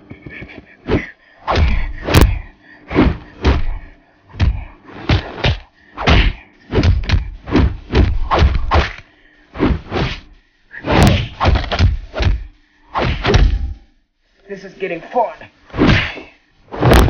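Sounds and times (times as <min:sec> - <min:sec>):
punch sound effects: 0:05.1 - 0:09.0, 0:10.8 - 0:12.4, 0:16.8 - 0:17.0.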